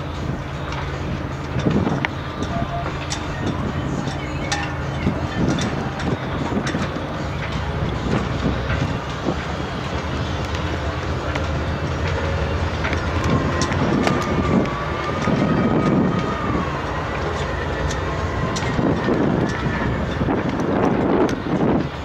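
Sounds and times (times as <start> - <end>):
diesel engines rumbling: 0.0 - 22.0
thin wavering whine: 0.0 - 22.0.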